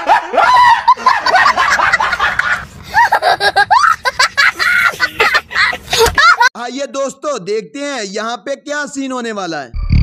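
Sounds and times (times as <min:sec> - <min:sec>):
hearty laughter: 0:00.0 - 0:06.5
child squealing laughter: 0:02.4 - 0:06.5.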